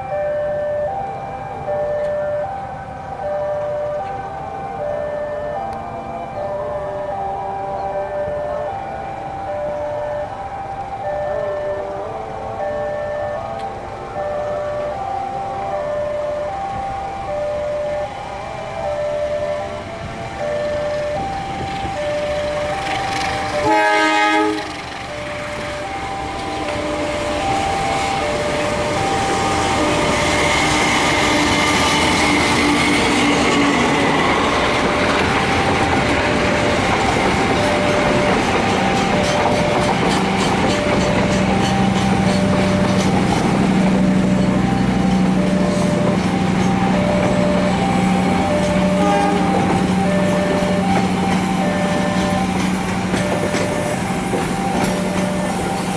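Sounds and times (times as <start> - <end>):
level-crossing alarm two tones: 0.0 - 55.9
train running noise: 0.0 - 55.9
wheels clicking over rail joints: 0.0 - 55.9
train horn blast: 17.5 - 55.9.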